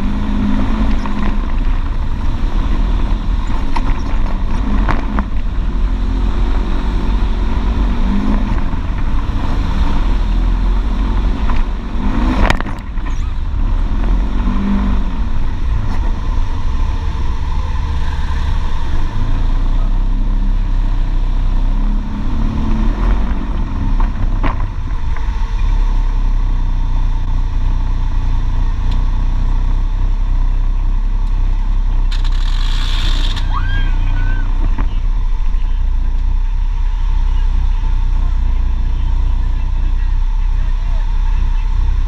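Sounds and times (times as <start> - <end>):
engine running steadily: 0.0 - 42.0.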